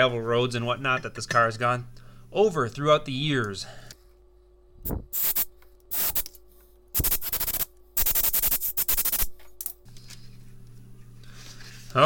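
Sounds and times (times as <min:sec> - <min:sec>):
compressed air blow gun hissing: 0:04.9 - 0:06.3, 0:07.0 - 0:09.3.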